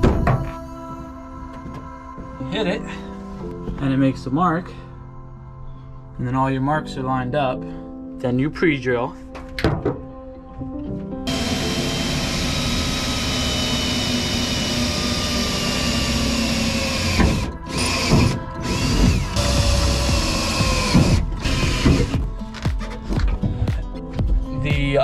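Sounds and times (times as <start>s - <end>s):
cordless drill drilling metal: 11.3s - 22.2s.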